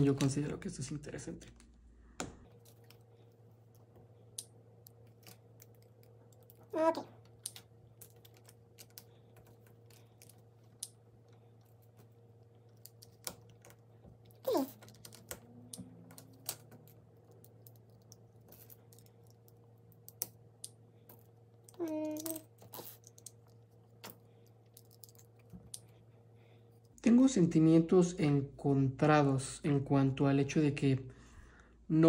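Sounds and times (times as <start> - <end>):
faint steady hum: 0.0 - 32.0
plastic pieces clicking: 12.0 - 25.9.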